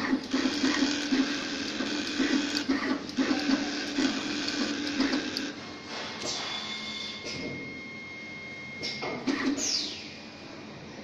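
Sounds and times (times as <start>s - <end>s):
gantry motors whirring in pulses: 0.0s - 8.0s.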